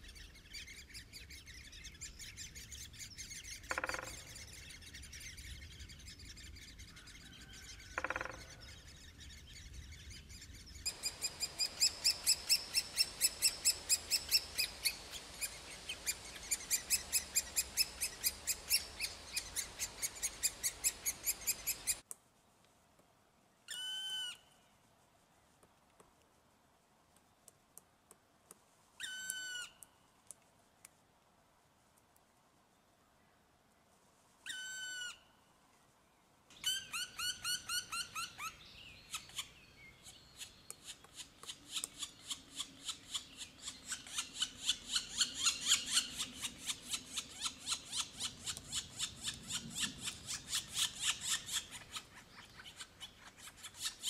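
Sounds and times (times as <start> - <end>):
background noise: 0.0 - 54.0
birds chirping: 7.8 - 22.0.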